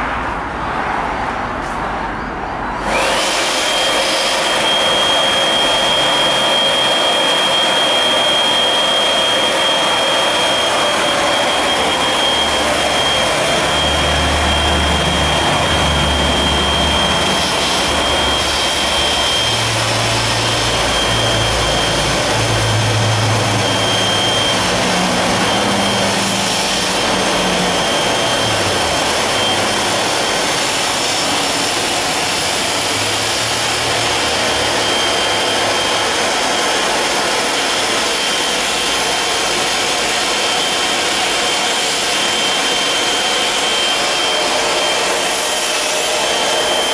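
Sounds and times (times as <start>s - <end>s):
electric air inflator whining: 2.8s - 46.9s.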